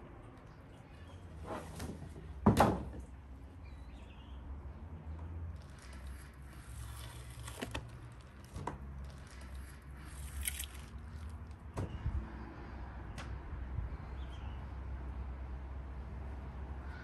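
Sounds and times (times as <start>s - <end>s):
wet squishes of meat: 9.1s - 11.4s.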